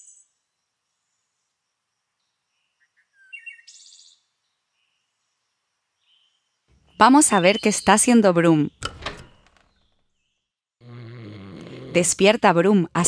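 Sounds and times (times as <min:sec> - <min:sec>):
bird trill: 0:02.9 - 0:04.2
birds chirping: 0:06.0 - 0:13.0.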